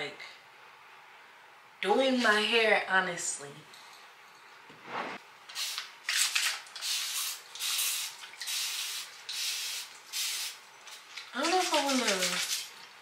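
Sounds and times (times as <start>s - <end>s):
spray bottle hissing: 6.8s - 10.6s.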